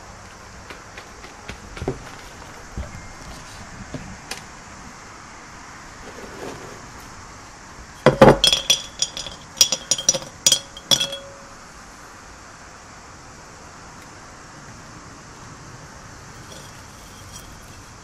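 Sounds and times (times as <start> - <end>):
stones clinking into ceramic pot: 8.0 - 11.6, 16.4 - 17.6.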